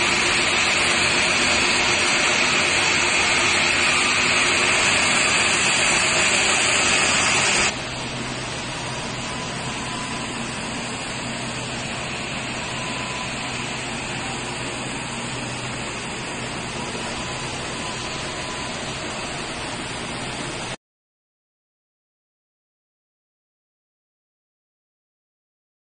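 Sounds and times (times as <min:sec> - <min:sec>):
faint high whine: 0:00.0 - 0:20.8
wire drawing machine running: 0:00.0 - 0:20.8.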